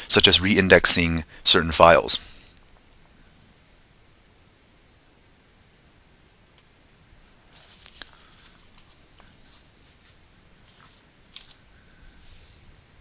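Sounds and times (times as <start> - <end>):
low hiss: 0.0 - 13.0
rustling and clicking: 7.5 - 11.7.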